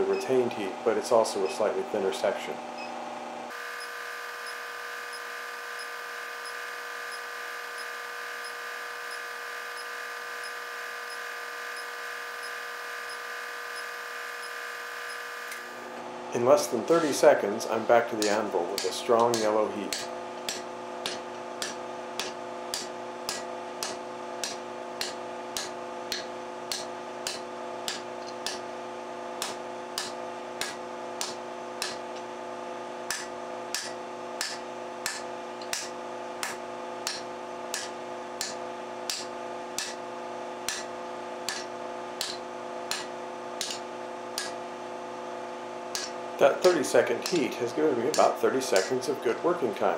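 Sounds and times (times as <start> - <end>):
steady hum: 0.0 - 49.9
hammer striking hot steel on anvil: 18.2 - 28.7, 29.4 - 32.1, 33.1 - 40.0, 40.7 - 40.9, 41.5 - 44.6, 45.9 - 47.5.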